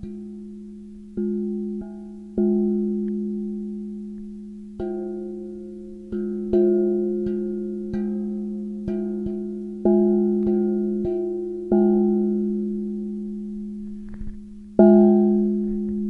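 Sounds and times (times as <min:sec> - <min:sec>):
gong strikes ringing: 0:14.8 - 0:16.0.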